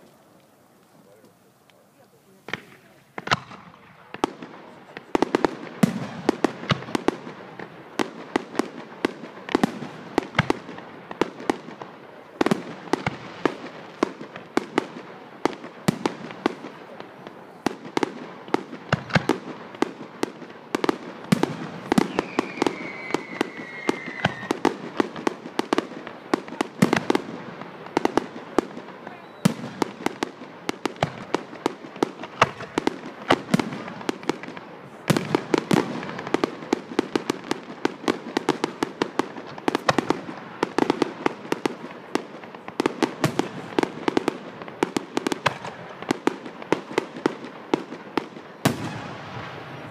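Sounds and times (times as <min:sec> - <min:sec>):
fireworks bangs and cracks: 0:00.0 - 0:49.9
firework falling whistle: 0:21.9 - 0:24.6.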